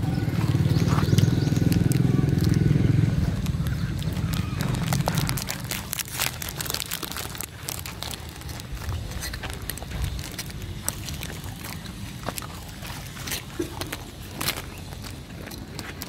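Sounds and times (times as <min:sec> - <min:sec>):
low rumble: 0:00.0 - 0:15.0
dogs crunching biscuits: 0:00.1 - 0:16.0.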